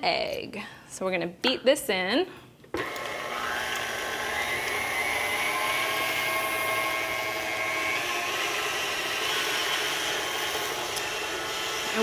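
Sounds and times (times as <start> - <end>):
beater mixing batter: 2.8 - 12.0
stand mixer motor whine: 2.8 - 12.0.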